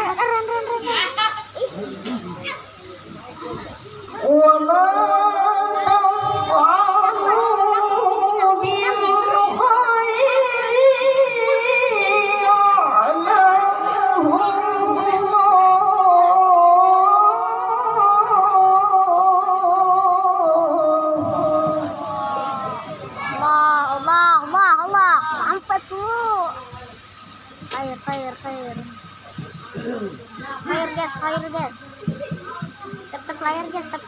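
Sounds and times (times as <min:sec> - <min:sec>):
boy reciting melodically: 0:00.0 - 0:02.7, 0:03.4 - 0:34.0.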